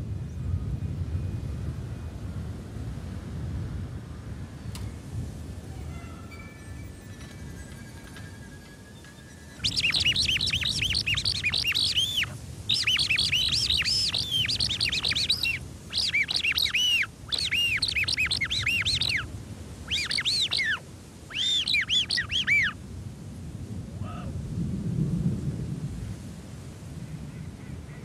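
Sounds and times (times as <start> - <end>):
high bird-like chirps: 6.3 - 19.3, 19.9 - 22.8.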